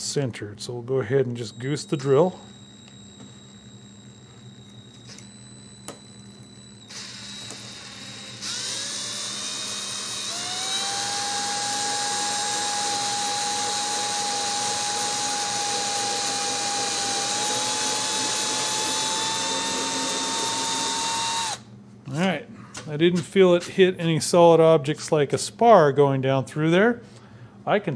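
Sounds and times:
cordless drill boring wood: 2.4 - 6.0, 6.6 - 21.6.

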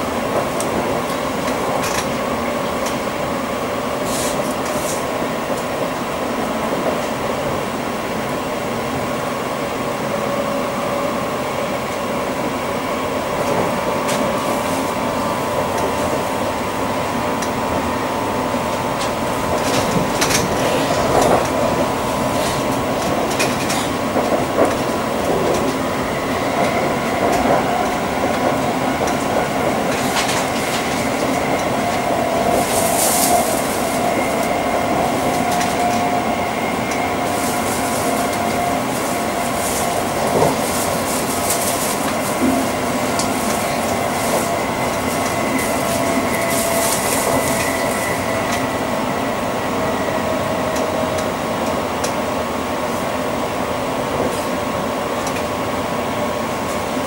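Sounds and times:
train wheels rumbling on track: 0.0 - 57.0
train motor whine: 12.7 - 57.0.

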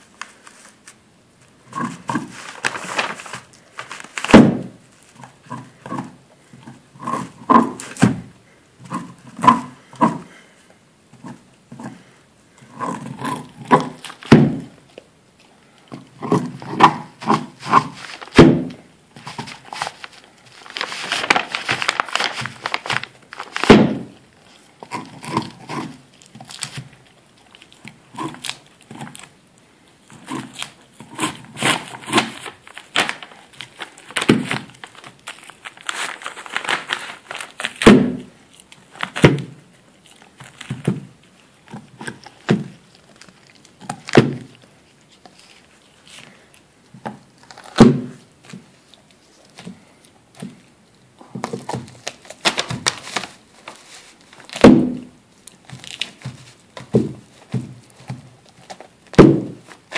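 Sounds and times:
dog gnawing bone: 24.4 - 29.4, 30.0 - 45.5.

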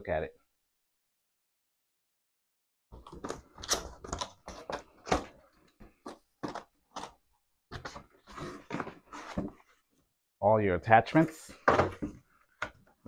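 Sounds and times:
cardboard box being opened: 7.8 - 9.8.

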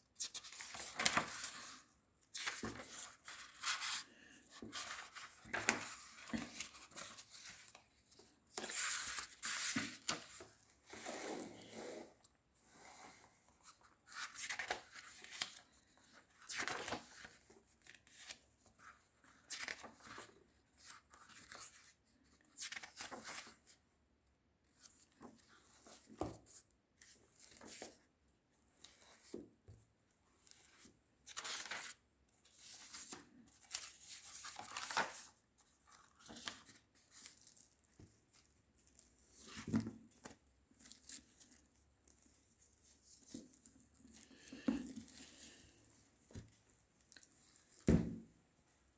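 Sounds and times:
book pages flipping: 0.2 - 11.2, 13.2 - 23.8, 30.4 - 45.7.

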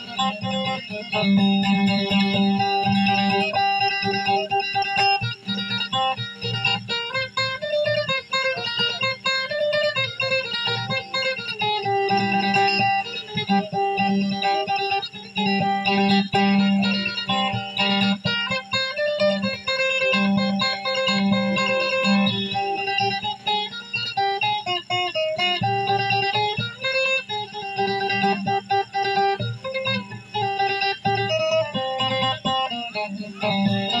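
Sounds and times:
acoustic guitar plucked melody: 0.0 - 34.0.

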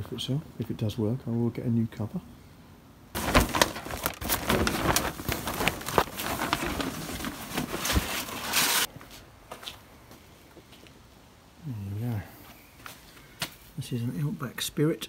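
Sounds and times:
fabric cover rustling and scraping: 3.2 - 8.9.

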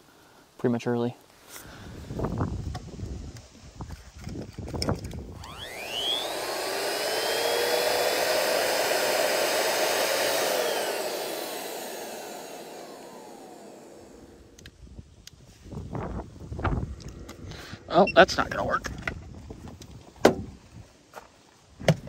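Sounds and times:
electric air pump whining: 4.2 - 14.8.

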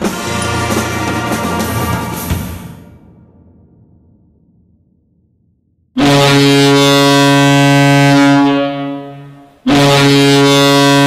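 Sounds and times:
hockey goal horn blasts: 6.0 - 11.0.

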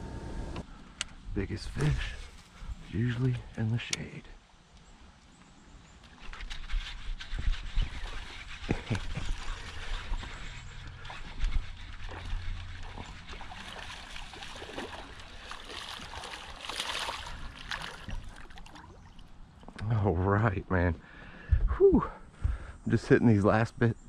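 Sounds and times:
fish splashing in water: 11.0 - 19.4.

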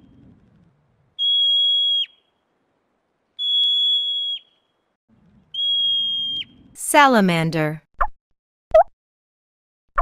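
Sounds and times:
marmot alarm whistles: 1.2 - 2.3, 3.4 - 4.7, 5.5 - 6.6.

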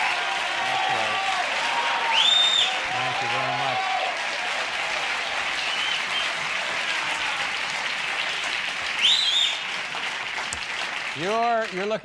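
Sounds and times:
studio audience applauding: 0.0 - 12.0
loud high whistle: 2.0 - 2.8, 5.6 - 6.4, 9.0 - 9.6.

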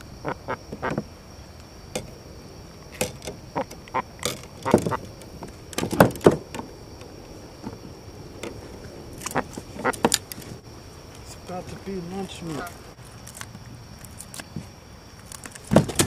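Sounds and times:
handling knocks: 3.0 - 6.7.

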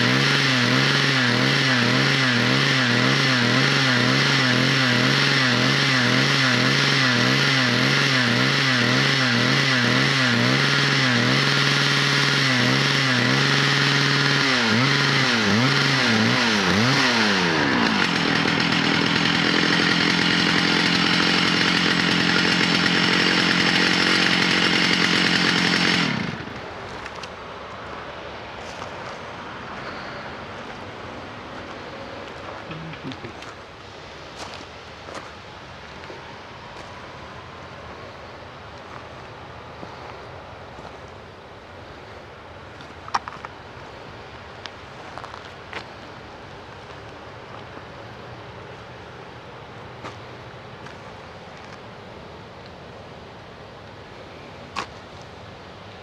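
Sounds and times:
chainsaw engine under load: 0.0 - 27.4, 32.3 - 33.5.

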